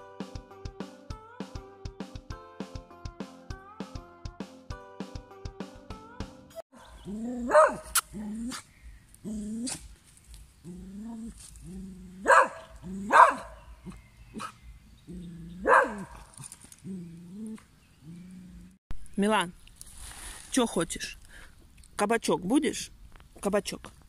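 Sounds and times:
dog barking sharply: 7.5 - 8.0, 12.2 - 13.6, 15.6 - 16.2.

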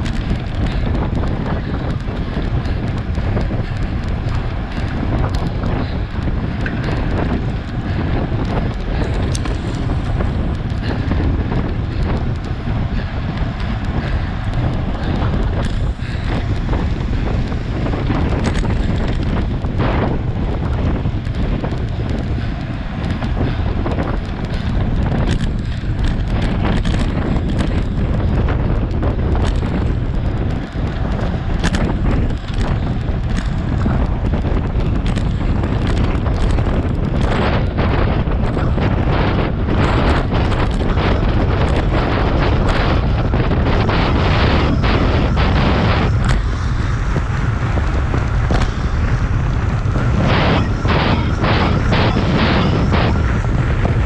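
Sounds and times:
sharp clicks and knocks: 0.0 - 54.0
wind buffeting microphone: 0.0 - 54.0.

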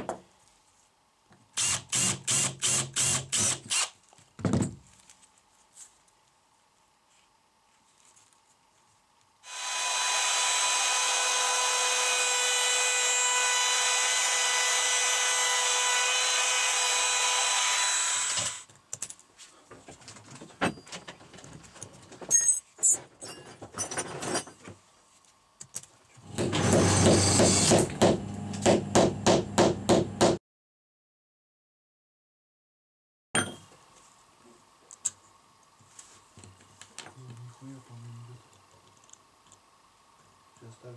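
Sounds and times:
power tool running: 1.6 - 3.9, 9.4 - 18.7, 26.2 - 29.0
hammer tapping metal piece: 33.4 - 33.7.

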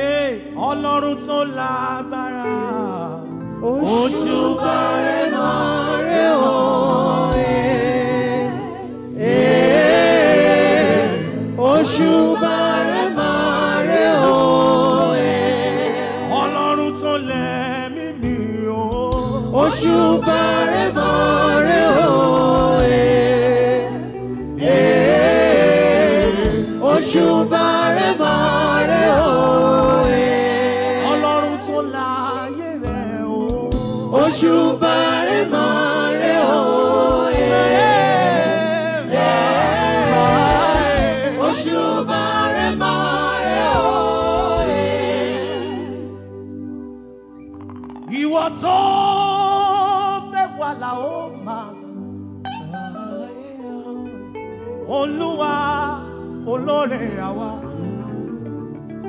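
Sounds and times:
gospel group singing in harmony: 0.0 - 59.0.

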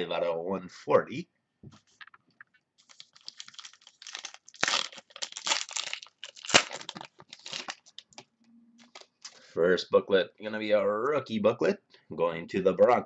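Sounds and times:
plastic wrapping snapping: 2.8 - 9.3
plastic wrapping crinkling: 2.8 - 9.4.

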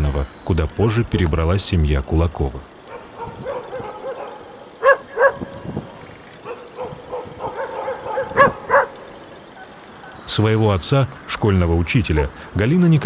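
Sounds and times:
geese honking: 6.2 - 10.3.

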